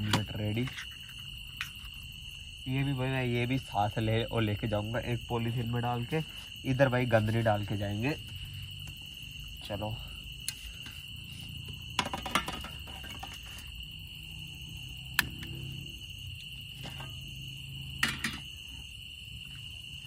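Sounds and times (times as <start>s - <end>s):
high-pitched insect trill: 0.0s - 20.0s
metal cookware clicks and clatter: 12.0s - 13.4s, 18.0s - 18.4s.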